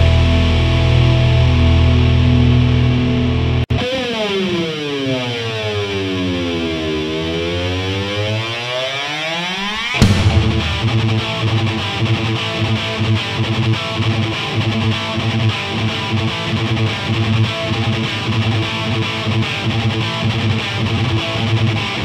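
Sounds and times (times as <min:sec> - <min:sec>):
distorted electric guitar riff: 0:00.0 - 0:08.4, 0:09.2 - 0:22.0
heavy metal music: 0:09.5 - 0:13.2.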